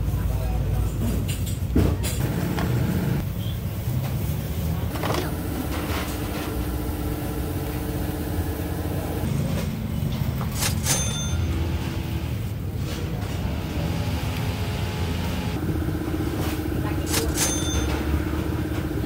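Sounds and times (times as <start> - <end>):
sharp metallic clinks: 10.6 - 11.6, 17.1 - 18.2.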